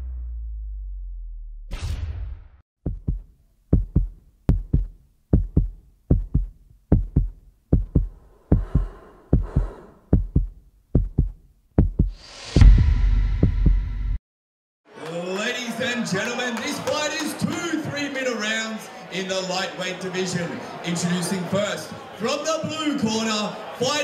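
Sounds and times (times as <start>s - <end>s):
heartbeat thumps: 2.8s - 14.2s.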